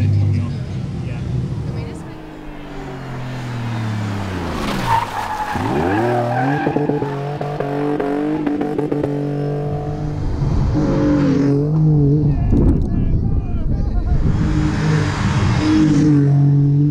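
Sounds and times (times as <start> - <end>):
car engine revving: 0.0 - 12.9, 13.6 - 16.9
tyre squeal: 4.5 - 7.3.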